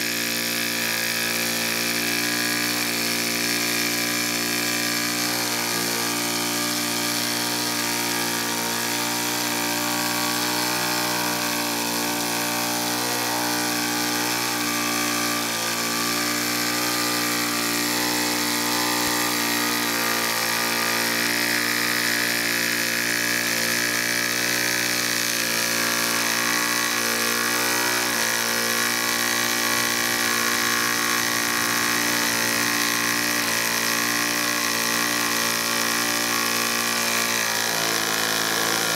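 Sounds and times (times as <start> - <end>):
model steam engines whirring: 0.0 - 38.9.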